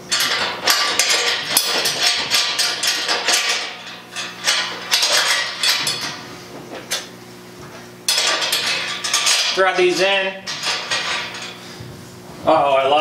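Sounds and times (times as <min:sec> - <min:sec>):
metal fittings clinking and knocking: 0:00.1 - 0:06.2, 0:08.1 - 0:11.6.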